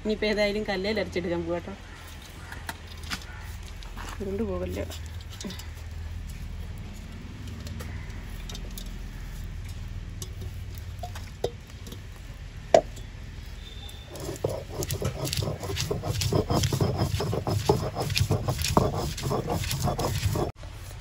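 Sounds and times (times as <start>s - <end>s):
grinding stone scraping: 14.0s - 20.6s.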